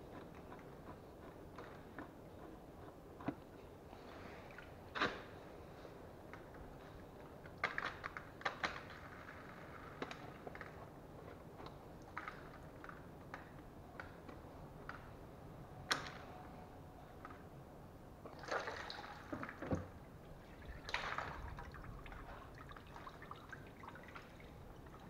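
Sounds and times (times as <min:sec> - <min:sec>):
oil splashing and dripping: 0:18.2 - 0:25.0.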